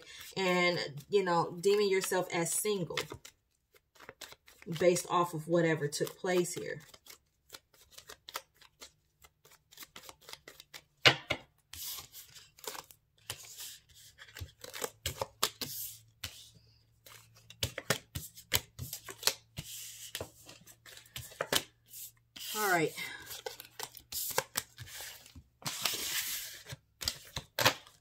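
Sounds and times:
cards slapping and sliding: 3.9s - 4.7s, 6.8s - 28.0s.

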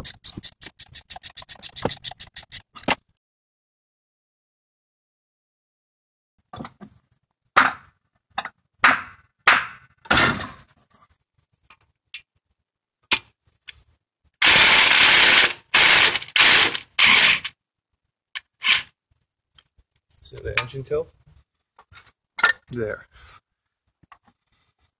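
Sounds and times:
loud tool bursts loosening bolt: 14.4s - 17.5s, 18.4s - 18.9s.

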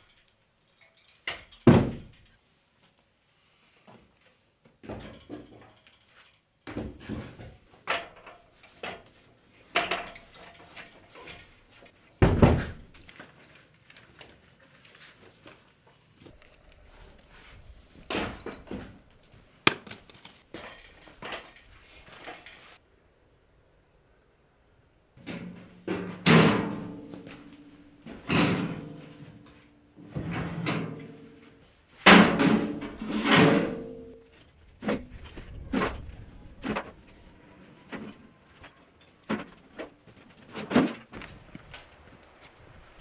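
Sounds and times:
rubble knocks and clatters: 4.7s - 16.5s, 17.5s - 22.8s, 32.0s - 43.0s.

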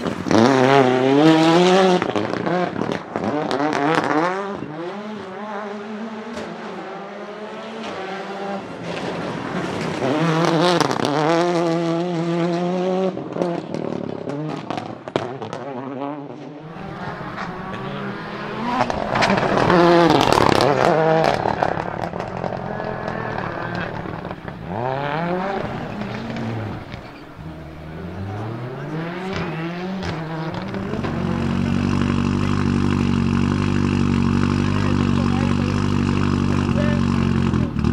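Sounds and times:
rally car engine revving: 0.0s - 37.9s
exhaust bangs and pops: 2.0s - 4.7s, 18.6s - 27.9s, 29.2s - 37.9s.

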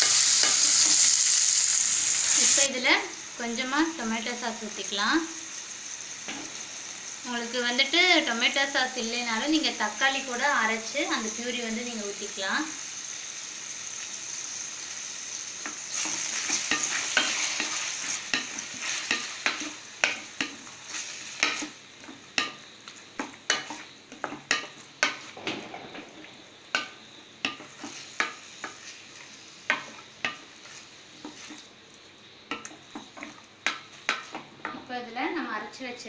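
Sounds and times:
food sizzling in a pan: 0.0s - 36.0s
wooden spatula scraping a pan: 15.7s - 22.5s, 27.5s - 31.7s.

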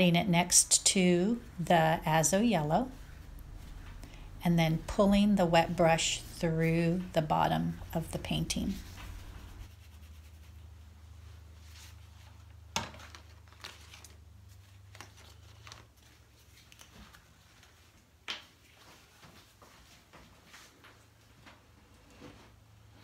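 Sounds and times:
low hum: 0.0s - 10.3s
paintbrush rubbing on paper: 8.0s - 12.1s.

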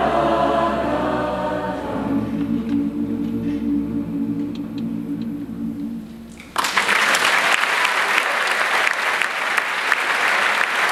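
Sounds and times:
choir singing chord: 0.0s - 6.4s
audience applause: 6.3s - 10.9s.

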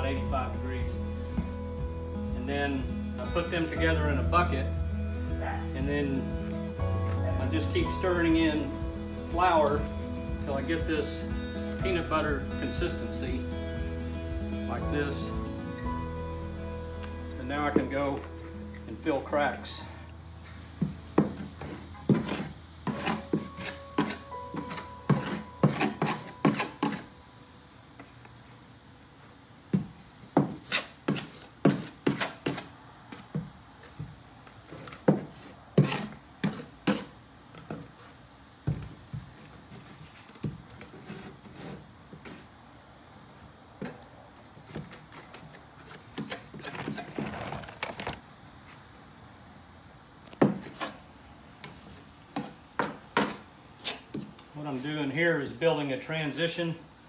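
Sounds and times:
putty knife scraping: 21.2s - 27.1s, 30.4s - 33.3s, 34.8s - 38.1s, 53.2s - 54.3s.

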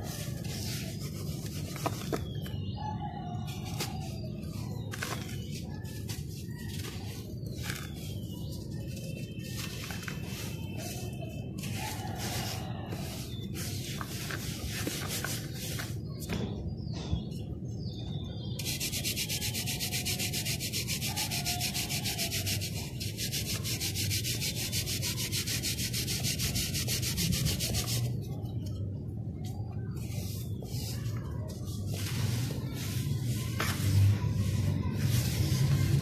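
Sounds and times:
dirt and sand rasping scrape: 3.6s - 16.0s, 30.1s - 36.0s.

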